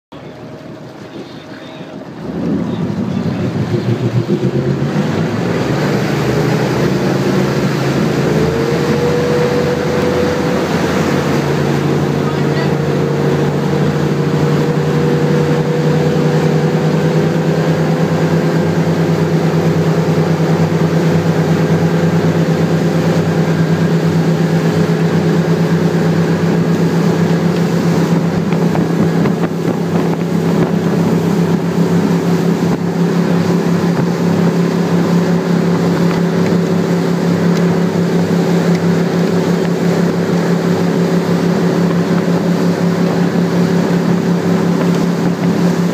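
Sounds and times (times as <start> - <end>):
motorboat engine humming: 0.1 - 45.9
rushing water: 0.1 - 45.9
wind noise: 26.4 - 45.9.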